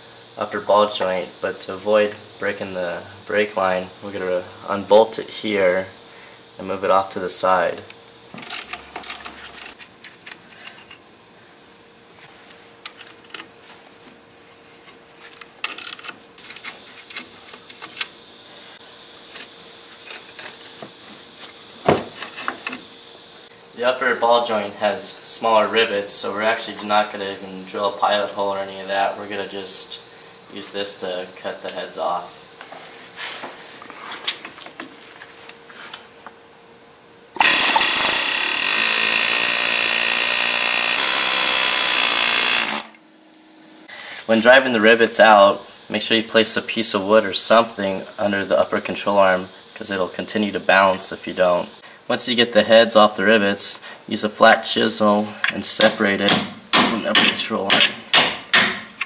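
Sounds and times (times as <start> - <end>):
pneumatic air hammer hammering: 37.4 - 43.0, 55.8 - 59.0.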